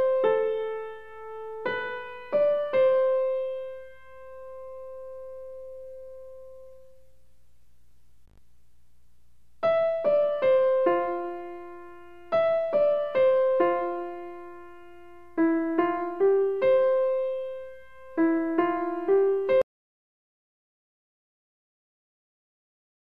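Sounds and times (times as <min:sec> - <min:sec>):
piano-like keyboard melody: 0:00.0 - 0:07.1, 0:09.6 - 0:19.7.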